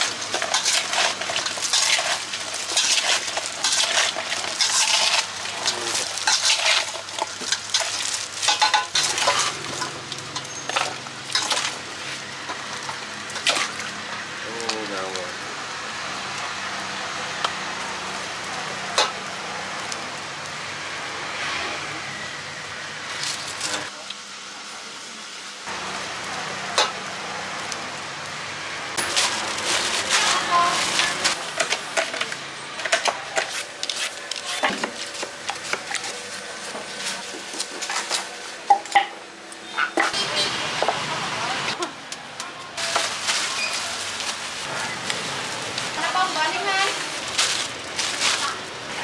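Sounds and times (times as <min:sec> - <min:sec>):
knife peeling over plastic bags: 0:29.0 - 0:31.4, 0:42.8 - 0:48.8.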